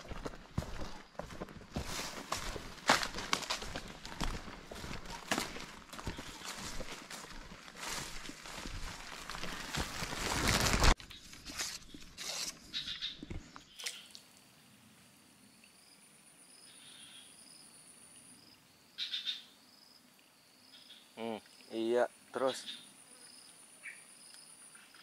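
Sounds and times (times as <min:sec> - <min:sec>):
footsteps rustling through dry leaves: 0:00.0 - 0:13.0
rustles and clicks: 0:01.3 - 0:13.6.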